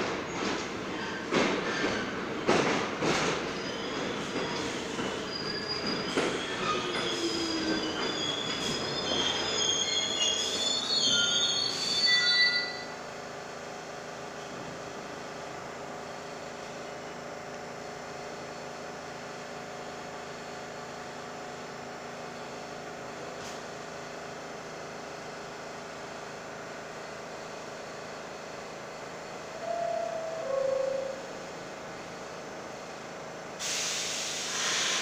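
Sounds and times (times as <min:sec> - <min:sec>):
subway train steady hum: 0:00.0 - 0:35.0.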